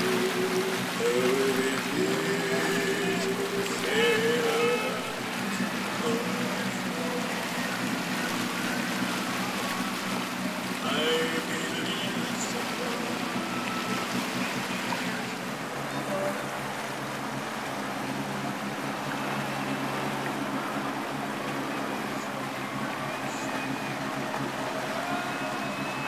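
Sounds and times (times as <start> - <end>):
brief voices: 0.0 - 16.8
boat engine running: 0.0 - 26.0
water washing along hull: 0.0 - 26.0.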